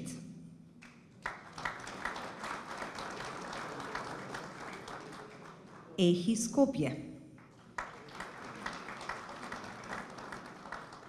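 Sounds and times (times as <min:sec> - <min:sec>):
audience applauding: 0:00.8 - 0:06.0, 0:07.4 - 0:11.0.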